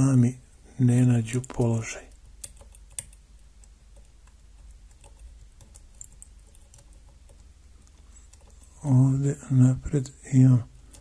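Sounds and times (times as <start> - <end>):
sharp clicks: 1.3 - 8.7.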